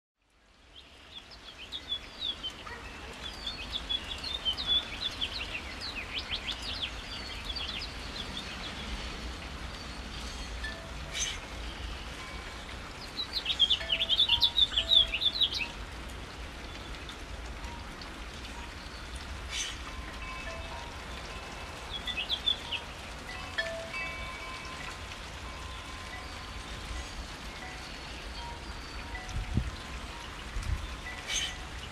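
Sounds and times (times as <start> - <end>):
steady rain: 0.2 - 31.9
small birds chirping: 0.7 - 15.8, 18.6 - 24.8.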